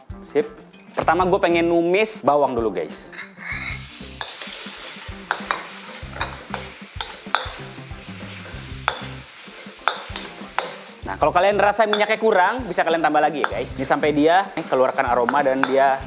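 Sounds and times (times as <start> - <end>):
metal ladle scraping wok: 3.1 - 11.0
garlic sizzling in hot oil: 3.5 - 16.0.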